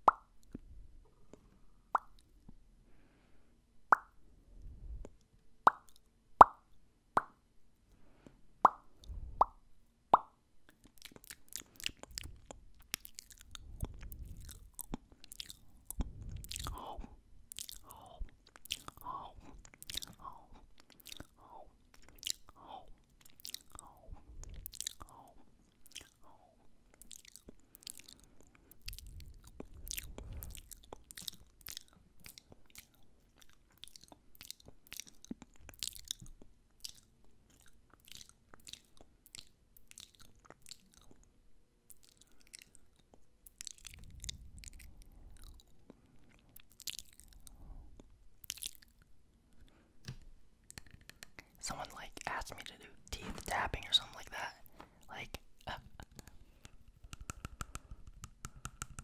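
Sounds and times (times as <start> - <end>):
tongue clicks: 1.9 - 2.2, 5.7 - 6.6
lip smacks: 10.2 - 16.9, 17.5 - 22.6, 26.9 - 41.2, 55.2 - 59.0.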